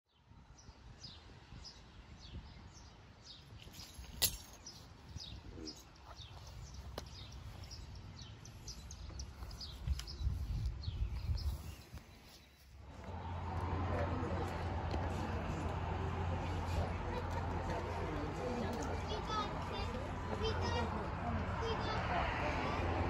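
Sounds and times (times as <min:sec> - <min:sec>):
small birds chirping: 0:00.1 - 0:13.4
low outdoor rumble: 0:12.8 - 0:23.0.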